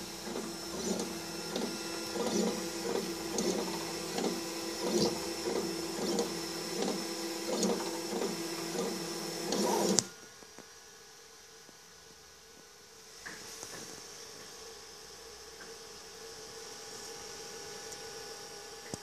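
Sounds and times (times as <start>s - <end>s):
machine stopping click: 0.0s - 10.1s
stepper motors whirring: 0.0s - 10.1s
steady machine hum: 0.0s - 10.2s.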